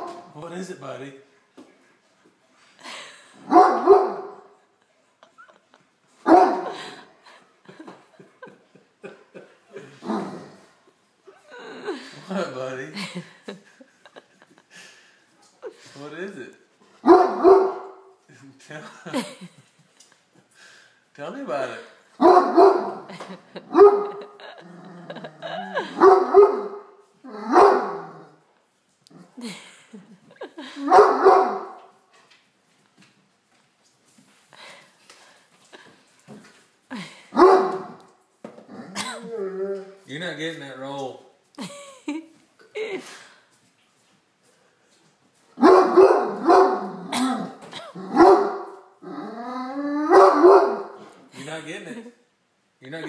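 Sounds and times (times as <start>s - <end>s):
dog barking deeply: 3.5s - 4.4s, 6.3s - 6.7s, 17.0s - 17.9s, 22.2s - 23.1s, 26.0s - 28.2s, 30.8s - 31.8s, 37.4s - 38.0s, 45.6s - 48.7s, 50.0s - 51.0s.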